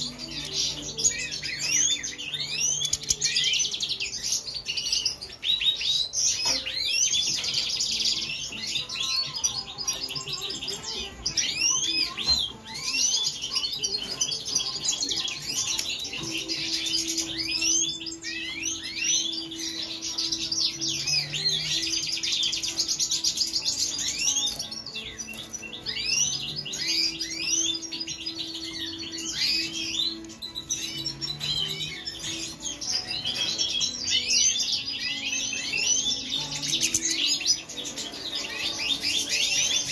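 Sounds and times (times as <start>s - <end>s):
finches chirping and trilling: 0.0s - 39.9s.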